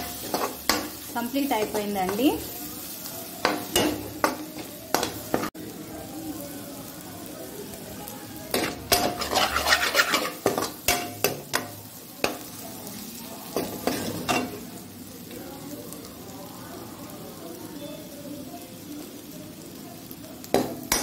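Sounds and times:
low sizzle: 0:00.0 - 0:21.0
metal spoon scraping metal pan: 0:08.9 - 0:11.1.

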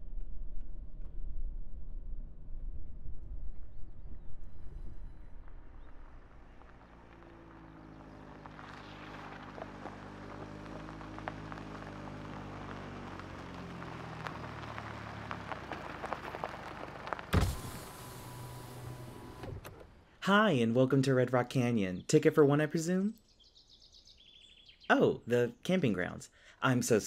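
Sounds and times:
car engine slowing: 0:04.1 - 0:20.2
crackling tyre noise: 0:04.4 - 0:20.2.

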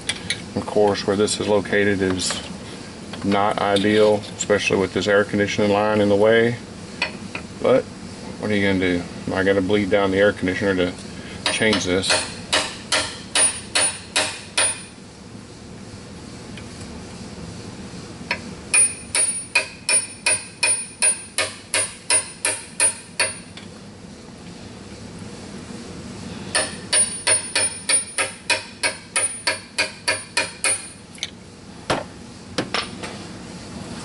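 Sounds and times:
hammer tapping metal: 0:11.4 - 0:14.9, 0:18.7 - 0:23.5, 0:26.5 - 0:31.0.

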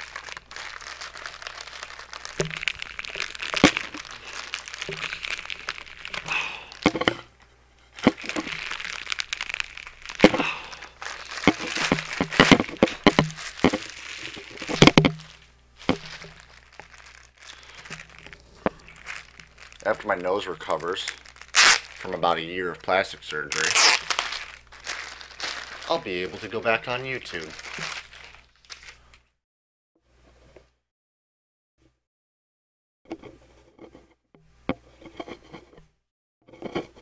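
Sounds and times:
plastic mailer bag crinkling: 0:00.0 - 0:07.2, 0:07.9 - 0:29.2.

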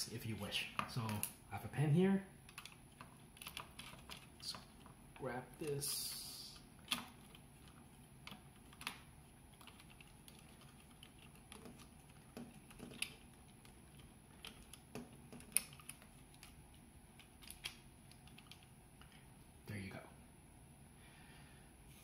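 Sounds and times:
plastic toy parts clicking: 0:09.6 - 0:16.6.

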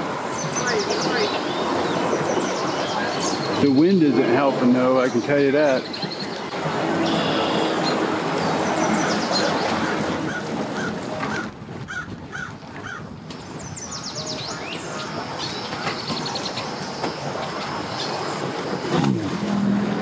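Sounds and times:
bird chirping: 0:13.6 - 0:18.4
outdoor rumble: 0:15.2 - 0:20.0.

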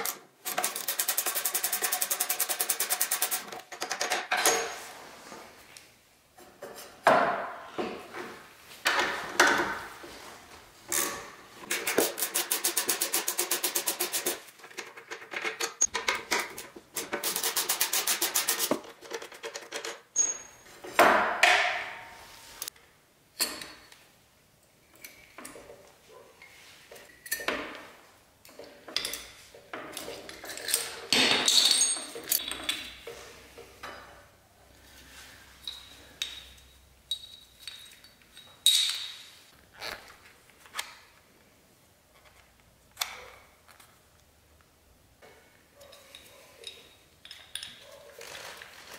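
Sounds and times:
metallic clinks and knocks: 0:35.6 - 0:39.2.

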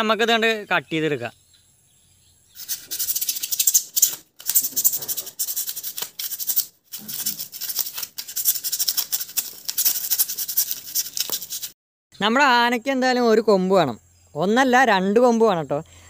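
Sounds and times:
knife sawing through foam: 0:02.6 - 0:11.8.

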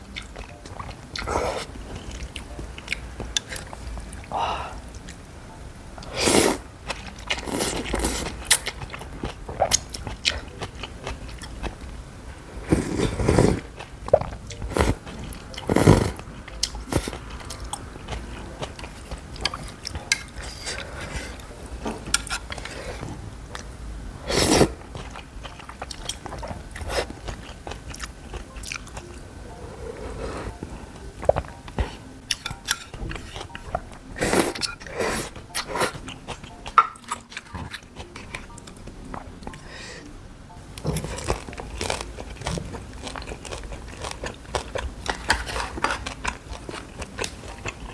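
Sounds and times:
soft chewing: 0:00.0 - 0:05.4, 0:06.8 - 0:12.0, 0:12.6 - 0:23.8, 0:24.6 - 0:47.9
slurping noodles: 0:06.0 - 0:06.6, 0:12.6 - 0:13.7, 0:24.2 - 0:24.8.

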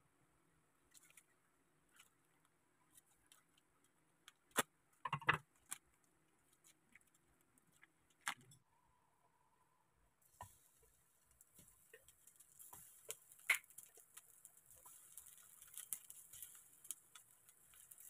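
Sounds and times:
plastic bag crinkling: 0:11.5 - 0:18.0.

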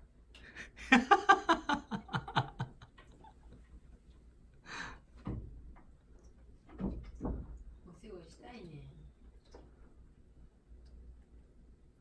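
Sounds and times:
person chuckling: 0:00.5 - 0:03.6.

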